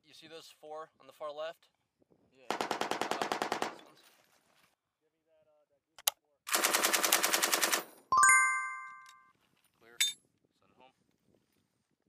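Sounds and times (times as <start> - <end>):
machine gun firing: 2.5 - 3.8, 6.5 - 7.8
bright ringing chime: 8.2 - 9.3.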